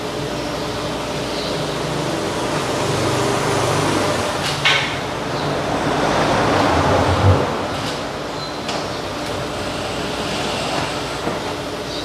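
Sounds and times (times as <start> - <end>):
workshop machine hum: 0.0 - 12.0.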